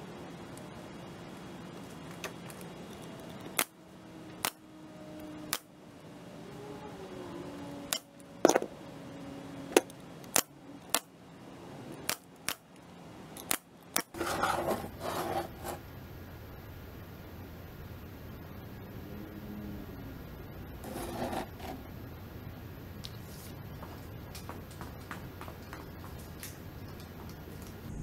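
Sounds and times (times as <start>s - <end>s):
scraping shuffle: 14.1s - 15.8s, 20.8s - 21.8s.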